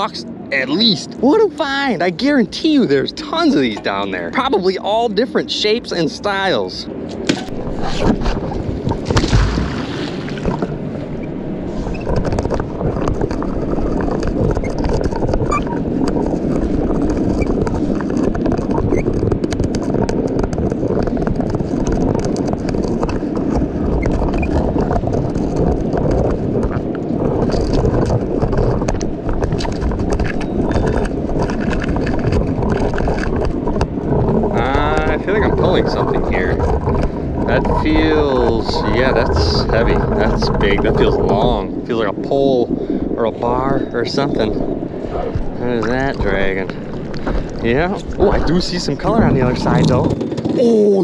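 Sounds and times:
muffled river water rushing: 0:06.9 - 0:50.1
heavy low thud: 0:07.2 - 0:11.2
knocks and scrapes underwater: 0:07.2 - 0:43.0, 0:44.4 - 0:50.6.

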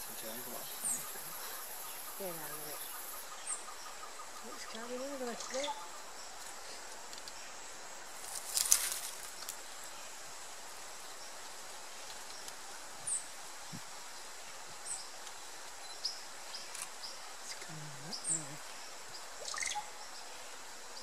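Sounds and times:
steady hiss: 0:00.0 - 0:21.0
noisy rustle: 0:04.2 - 0:21.0.

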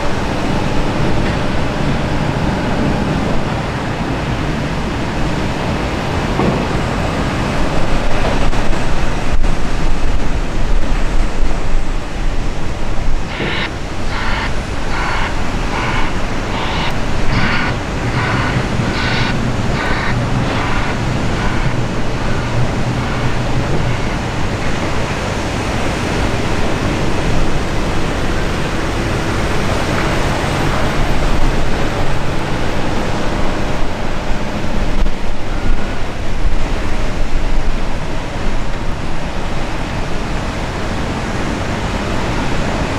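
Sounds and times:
heavy diesel engines running: 0:00.0 - 0:42.9
reversing alarm beeping: 0:13.3 - 0:25.7.

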